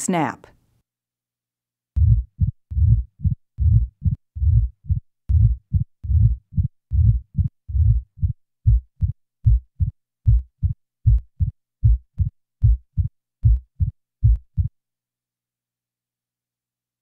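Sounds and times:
heartbeat sounds with opening snap: 2.0 - 14.7.

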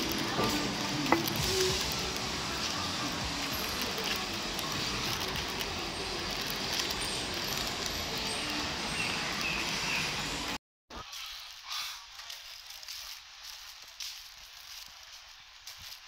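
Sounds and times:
traffic noise with low rumble: 0.0 - 10.6.

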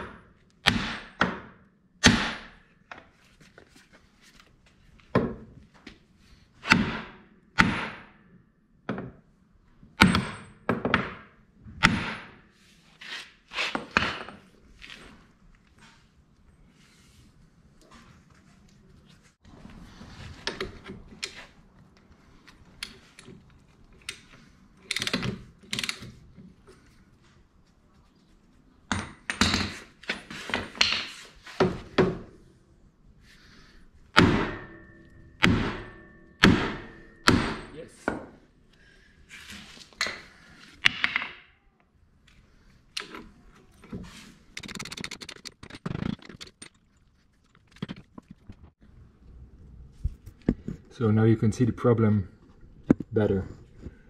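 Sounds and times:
hammer striking steel: 34.2 - 38.2.

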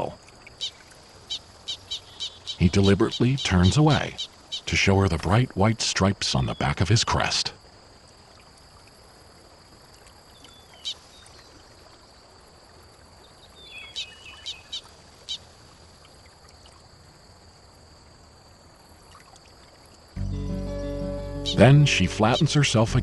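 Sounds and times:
faint steady hiss: 0.0 - 23.0
ducks whistled calls: 1.7 - 4.7, 21.3 - 22.8.

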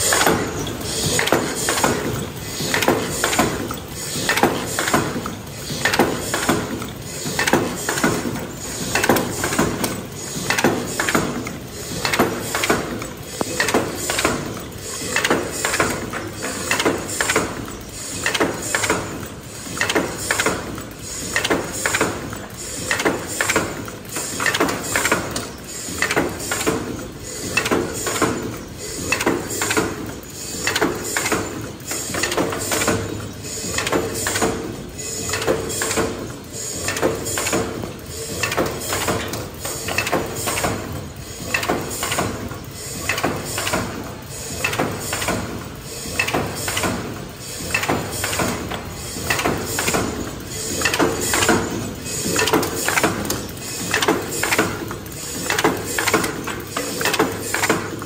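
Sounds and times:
machine clattering rhythmically: 0.0 - 58.0.

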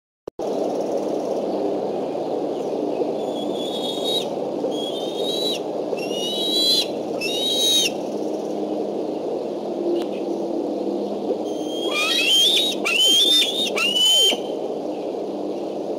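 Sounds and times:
low background noise: 0.4 - 15.9
eagle calling: 3.3 - 8.0, 11.5 - 14.6.

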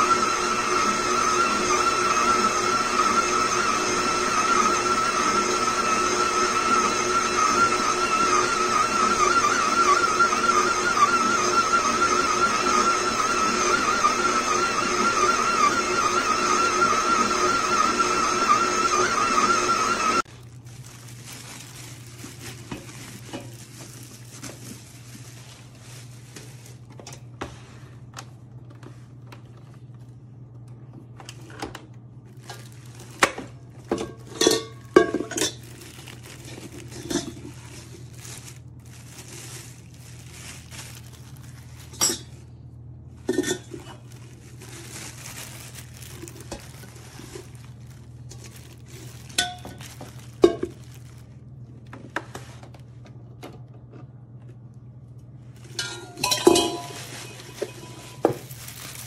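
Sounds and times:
plastic bag rustling: 20.2 - 27.7, 32.2 - 42.6, 43.2 - 53.0, 55.4 - 59.0
metal bowl clinking: 34.0 - 35.6, 55.7 - 58.5.

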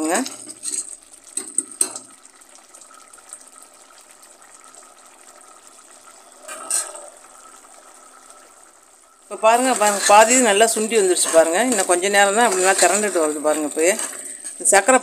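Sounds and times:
thick syrup bubbling: 0.0 - 15.0.

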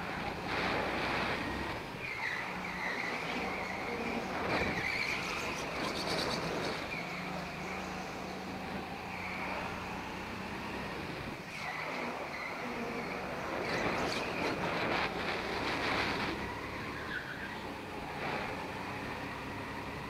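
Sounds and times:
go-kart motor whine: 0.0 - 20.0.

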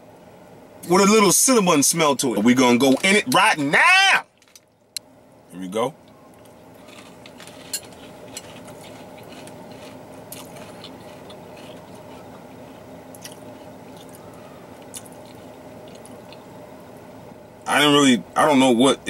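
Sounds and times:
steady low hum: 0.0 - 19.0
chewing cereal in milk: 6.4 - 16.5.

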